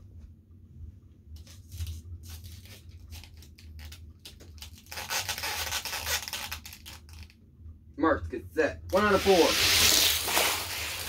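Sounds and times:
steady low hum: 0.0 - 5.0, 5.7 - 11.0
rustling scrape: 9.0 - 11.0.

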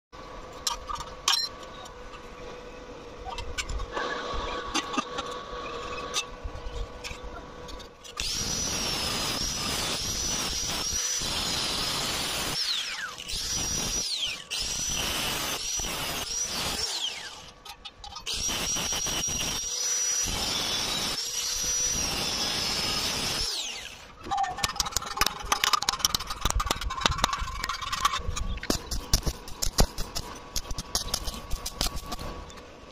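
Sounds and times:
angle grinder cutting steel: 7.7 - 17.6, 18.2 - 25.8.

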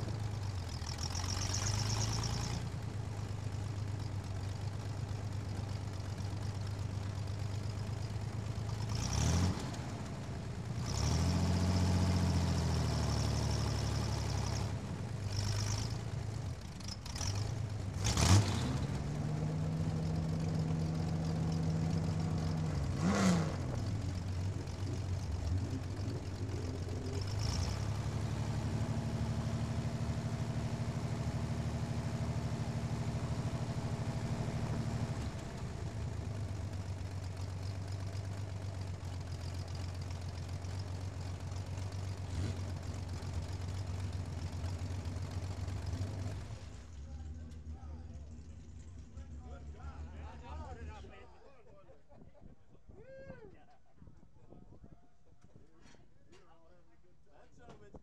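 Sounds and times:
race car engine idling: 0.0 - 9.1, 9.8 - 11.0, 12.1 - 18.1, 19.0 - 51.2
engine rev blips: 0.7 - 2.8, 10.8 - 29.8.

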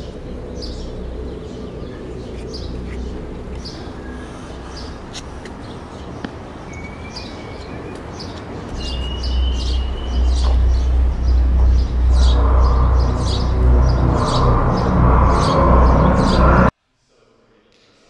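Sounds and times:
deep low rumble: 0.0 - 7.7, 8.4 - 16.7
birds chirping: 0.0 - 16.7
thin whistled notes: 8.7 - 14.5.

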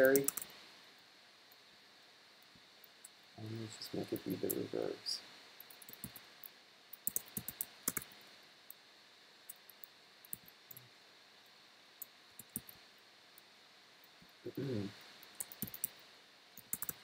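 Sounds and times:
keyboard typing clicks: 0.0 - 0.5, 5.7 - 6.2, 7.0 - 8.1, 12.4 - 12.8, 15.3 - 15.9, 16.6 - 17.0.

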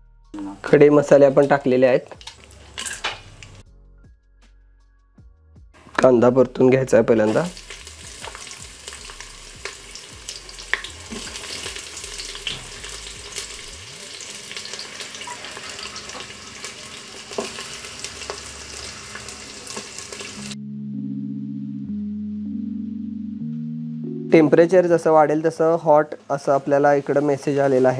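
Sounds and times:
background music: 0.0 - 26.4
onions sizzling in hot oil: 7.2 - 20.6.

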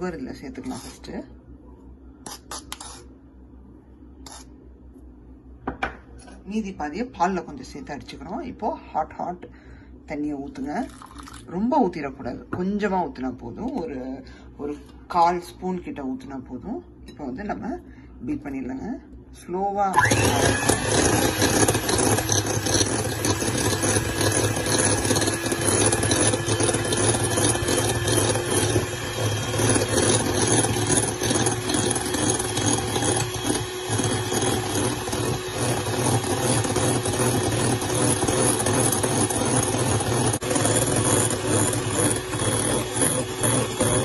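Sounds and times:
electric hand mixer whipping: 19.9 - 44.0.

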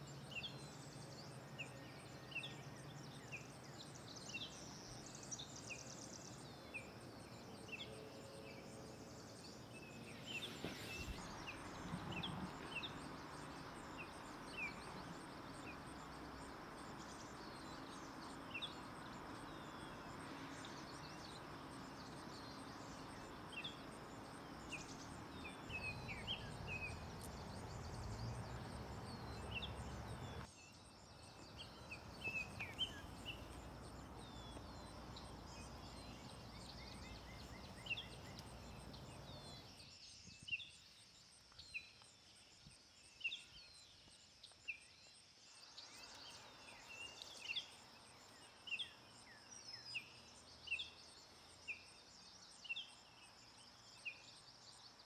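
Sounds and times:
small birds chirping: 0.0 - 55.0
steady background hiss: 0.0 - 55.0.

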